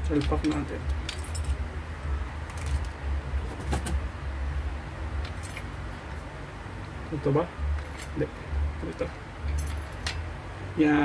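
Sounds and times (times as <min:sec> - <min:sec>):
metal guide clinking and rattling: 0:00.0 - 0:01.6, 0:02.4 - 0:04.0, 0:05.2 - 0:05.7, 0:08.9 - 0:10.3.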